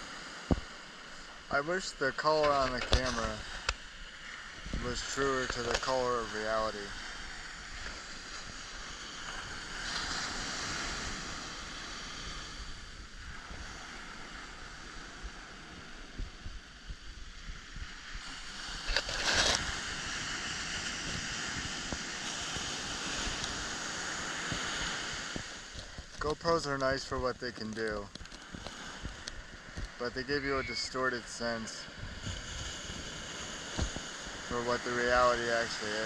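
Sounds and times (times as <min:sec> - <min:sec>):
ocean surf breaking: 0:00.0 - 0:36.0
wind buffeting microphone: 0:02.7 - 0:36.0.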